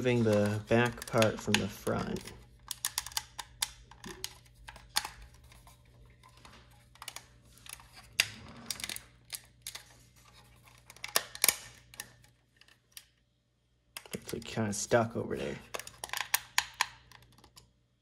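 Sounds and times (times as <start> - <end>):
sharp plastic snaps: 0.0 - 5.6, 10.9 - 13.2, 15.6 - 17.7
plastic parts clicking and creaking: 0.0 - 13.2, 13.9 - 17.8.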